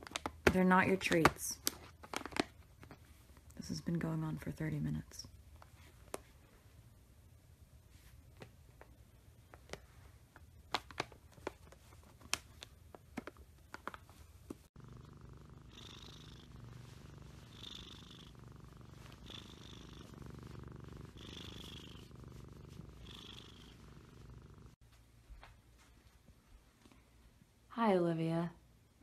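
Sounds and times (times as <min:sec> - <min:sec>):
cat purring: 0:14.7 - 0:24.8.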